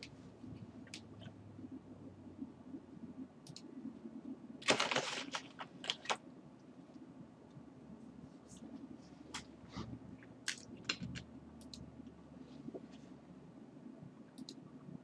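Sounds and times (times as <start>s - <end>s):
low steady hum: 0.0s - 15.0s
computer mouse clicks: 3.4s - 3.7s, 10.4s - 11.9s, 14.3s - 14.6s.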